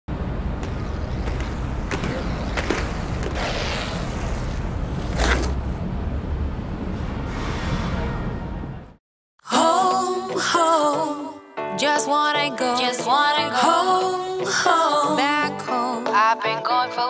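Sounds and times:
low rumble of traffic: 0:00.1 - 0:09.0.

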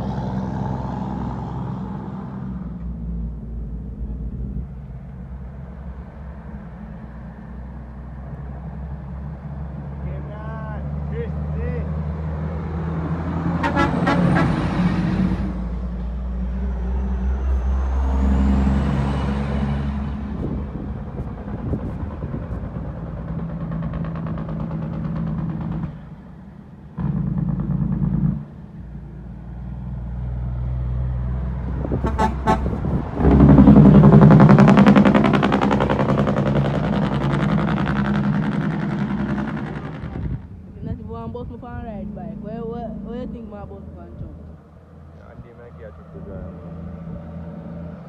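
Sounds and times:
diesel trucks passing: 0:00.0 - 0:48.0
truck horn toot: 0:13.5 - 0:14.9, 0:32.0 - 0:32.8
engine whistle: 0:13.6 - 0:14.6.

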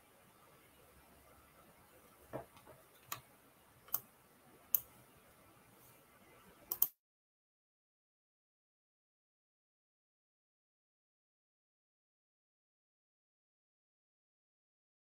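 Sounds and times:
sharp clicks: 0:06.7 - 0:07.0.

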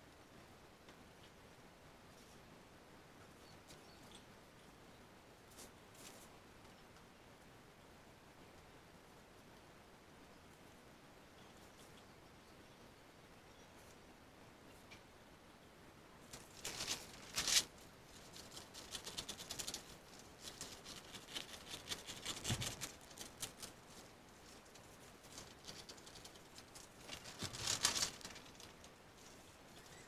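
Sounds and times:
paper crinkling and rustling: 0:16.3 - 0:29.4.

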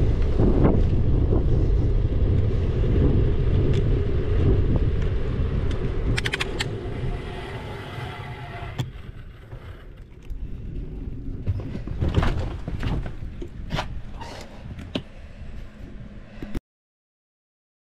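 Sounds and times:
bicycle road noise: 0:00.0 - 0:16.6
wind rumbling on microphone: 0:00.0 - 0:16.6
bicycle clicks and knocks: 0:04.9 - 0:06.8.

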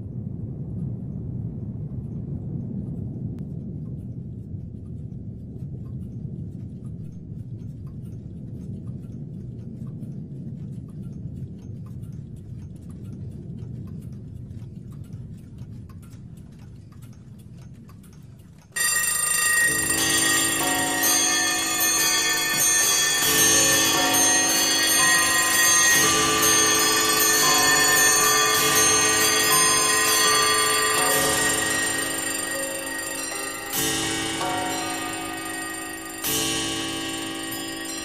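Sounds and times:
low steady rumble: 0:00.0 - 0:38.0
faint ticks: 0:00.2 - 0:21.2
clock bells and chimes ringing: 0:18.8 - 0:38.0.

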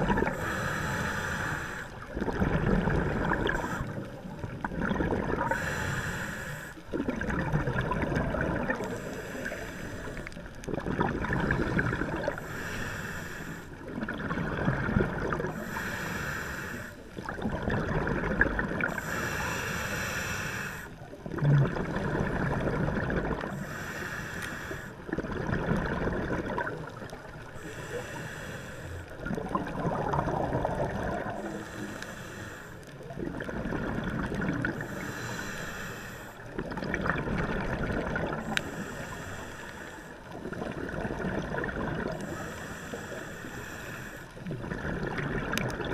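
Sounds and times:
underwater bubbling gurgles: 0:00.0 - 0:45.9
scuba regulator breathing hiss: 0:00.2 - 0:02.0, 0:05.4 - 0:06.8, 0:08.9 - 0:10.4, 0:12.3 - 0:13.8, 0:15.5 - 0:17.1, 0:18.8 - 0:21.0, 0:23.5 - 0:25.0, 0:27.6 - 0:29.2, 0:31.4 - 0:32.8, 0:34.8 - 0:36.5, 0:38.4 - 0:40.3, 0:42.2 - 0:44.3.

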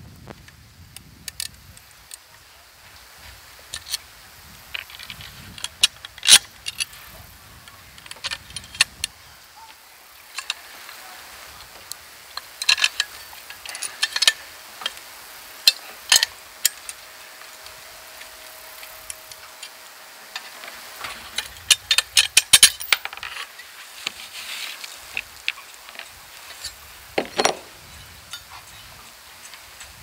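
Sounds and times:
small metal screws clinking: 0:04.7 - 0:07.1, 0:12.4 - 0:23.6, 0:25.0 - 0:30.0.

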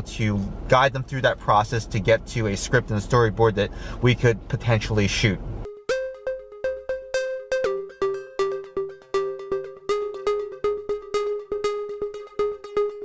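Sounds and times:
light electronic tune: 0:05.7 - 0:13.0.

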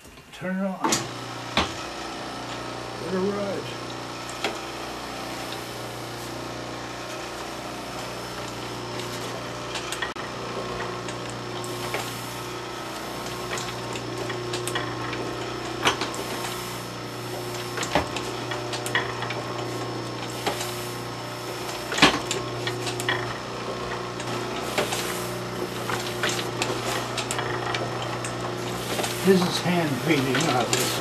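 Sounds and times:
printing press humming and clacking: 0:00.0 - 0:31.0
paper sheets rustling: 0:24.3 - 0:31.0.

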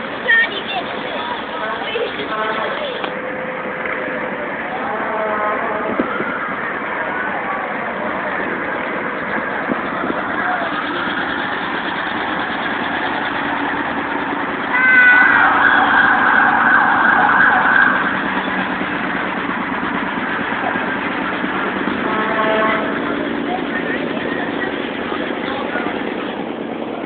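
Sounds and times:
passing vehicles: 0:00.0 - 0:27.0
people in street: 0:00.0 - 0:27.0
loud high-pitched sound: 0:10.2 - 0:23.8.

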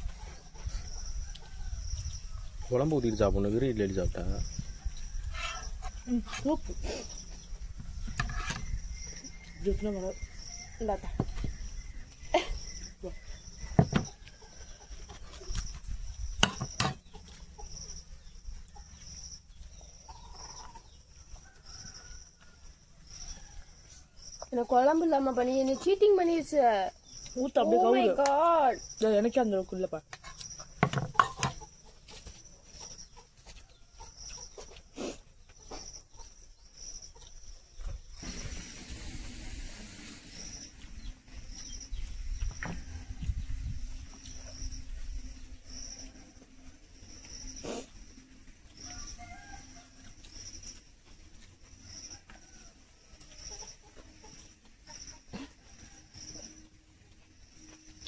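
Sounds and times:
insects chirping: 0:00.0 - 0:58.0
chickens clucking: 0:11.0 - 0:22.5, 0:30.2 - 0:38.3, 0:50.3 - 0:56.5.

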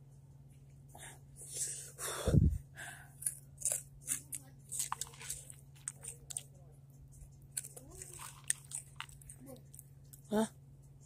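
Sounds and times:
steady low hum: 0:00.0 - 0:11.0
chewing crunchy chip: 0:03.2 - 0:06.6, 0:07.2 - 0:10.3.

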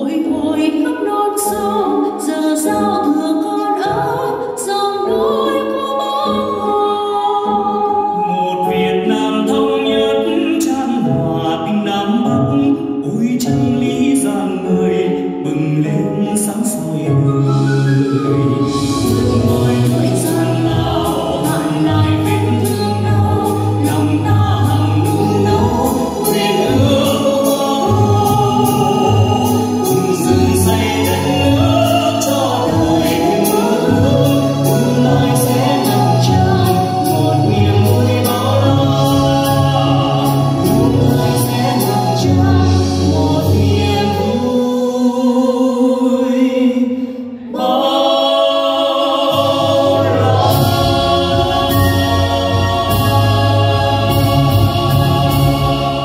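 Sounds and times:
man and woman singing duet: 0:00.0 - 0:56.0
instrumental accompaniment: 0:12.3 - 0:44.9, 0:47.4 - 0:56.0.

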